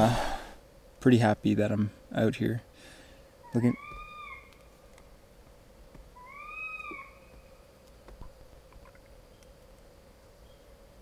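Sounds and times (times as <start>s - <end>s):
faint wailing animal cry: 3.4s - 4.6s, 6.1s - 7.6s.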